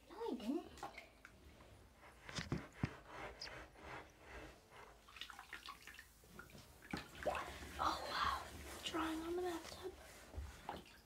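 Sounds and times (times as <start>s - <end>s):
hand splashing bath water: 5.0s - 11.0s.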